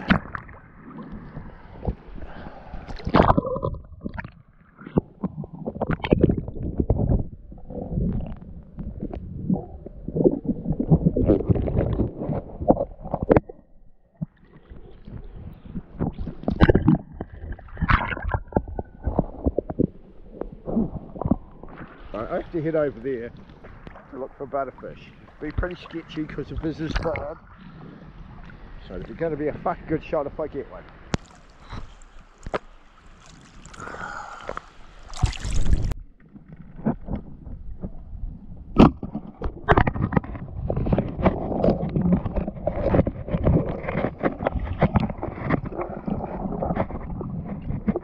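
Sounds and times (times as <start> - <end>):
water splashes: 0.0 - 7.2, 14.2 - 38.0
sea water sloshing and gurgling: 0.0 - 48.0
muffled underwater knocks and clicks: 3.0 - 22.0, 25.3 - 27.5, 35.7 - 48.0
seawater lapping and splashing: 30.8 - 37.0.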